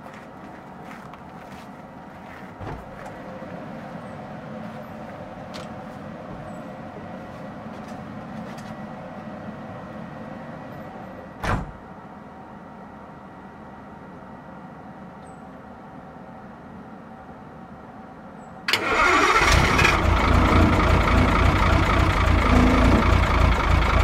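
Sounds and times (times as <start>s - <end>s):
truck door slamming: 11.4s - 11.8s.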